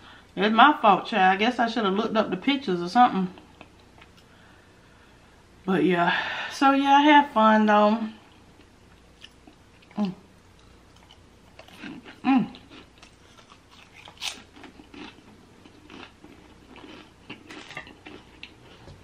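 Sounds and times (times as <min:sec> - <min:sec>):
cracker crunching while chewing: 0:08.6 - 0:19.0.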